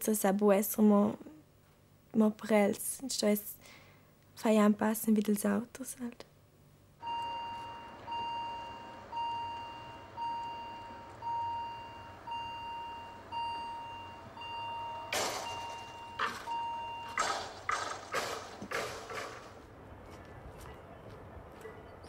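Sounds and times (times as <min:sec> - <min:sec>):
level crossing warning bell: 0:07.0 - 0:17.7
rushing noises: 0:17.2 - 0:19.7.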